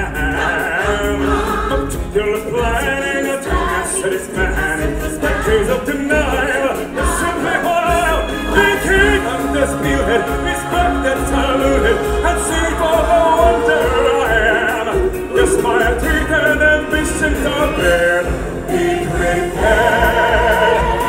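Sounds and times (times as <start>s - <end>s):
people singing: 0.0s - 21.0s
pulsing bass: 4.4s - 21.0s.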